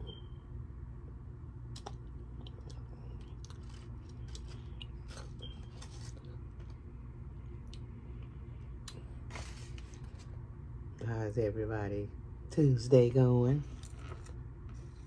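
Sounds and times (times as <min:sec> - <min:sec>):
steady low hum: 0:00.0 - 0:15.0
mouth chewing: 0:01.7 - 0:05.5.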